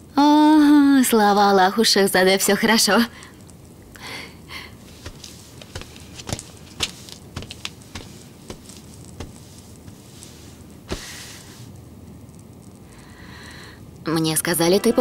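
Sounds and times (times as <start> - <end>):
soft footsteps: 4.8 - 11.7
rustle of long dresses: 4.8 - 11.8.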